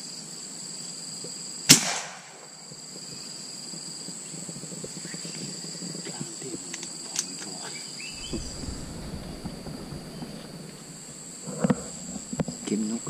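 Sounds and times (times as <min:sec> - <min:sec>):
insects droning: 0:00.0 - 0:13.0
rustling through grass: 0:08.2 - 0:11.6.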